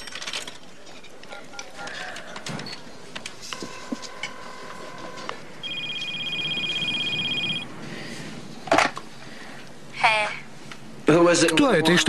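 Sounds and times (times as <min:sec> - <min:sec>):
two-note phone tone: 0:03.6 - 0:07.7
telephone ringer trilling: 0:03.7 - 0:07.7.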